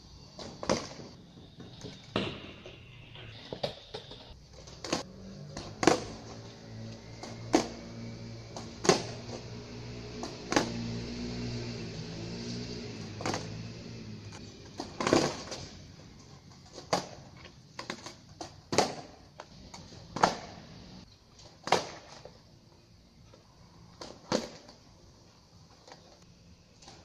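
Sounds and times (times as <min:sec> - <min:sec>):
skateboard clacking on pavement: 0:03.6 - 0:06.2, 0:14.8 - 0:15.7, 0:16.7 - 0:19.5
skateboard clatter: 0:14.8 - 0:15.7.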